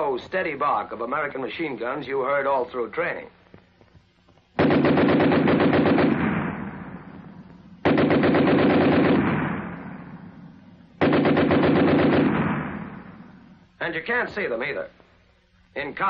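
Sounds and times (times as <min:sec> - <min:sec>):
machine gun bursts: 0:04.6 - 0:06.4, 0:07.8 - 0:09.4, 0:11.0 - 0:12.9.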